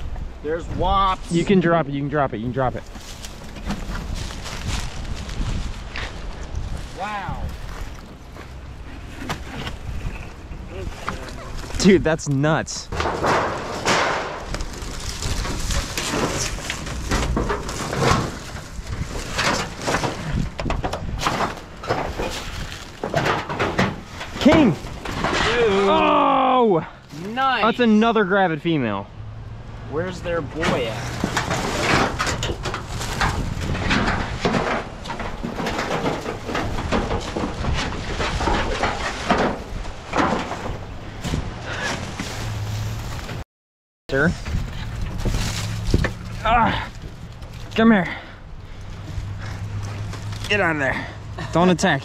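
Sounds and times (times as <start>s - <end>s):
rustling: 2.6s - 26.2s, 30.6s - 43.4s, 44.2s - 50.8s
crunching in dry leaves: 2.9s - 8.9s, 14.3s - 20.4s, 22.1s - 23.0s, 42.1s - 43.4s, 44.5s - 47.8s.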